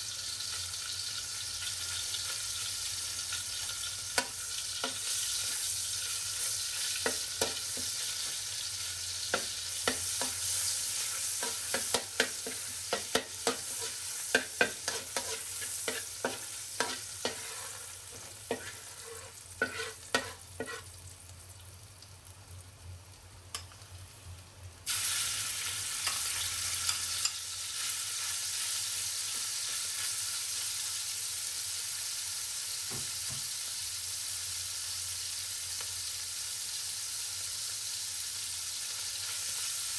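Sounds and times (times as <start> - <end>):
oil sizzling: 0.0 - 39.9
metal spatula scraping a wok: 9.3 - 20.9.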